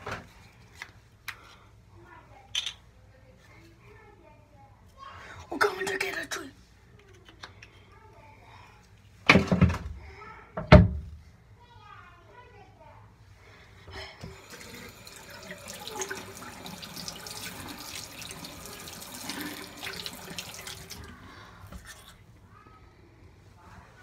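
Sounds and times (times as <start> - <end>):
tap water running into sink: 14.2 - 21.2.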